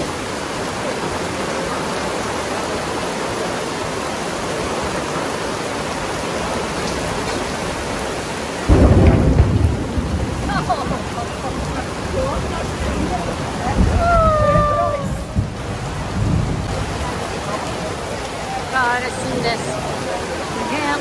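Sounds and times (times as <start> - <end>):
heavy rain on paving and puddles: 0.0 - 21.0
loud low rumble: 8.7 - 17.8.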